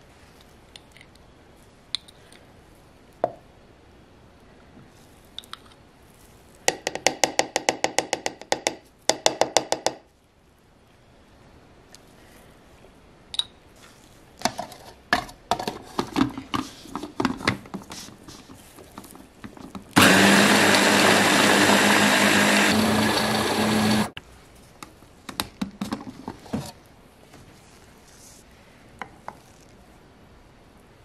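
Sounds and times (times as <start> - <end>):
electric food chopper running: 20.0 - 24.1.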